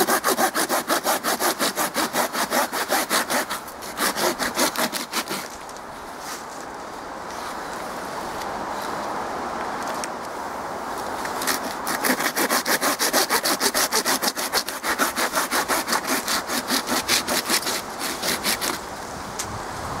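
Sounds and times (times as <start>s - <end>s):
pruning saw cutting wood: 0.0s - 5.7s, 11.4s - 18.9s.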